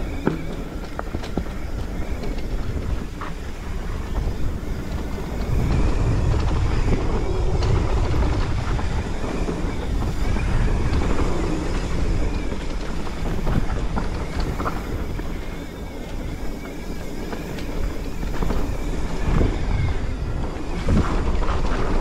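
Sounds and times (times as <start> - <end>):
bike clicks and rattles: 0.0 - 22.0
tyres rumbling on dirt: 0.0 - 22.0
wind rushing over microphone: 0.0 - 22.0.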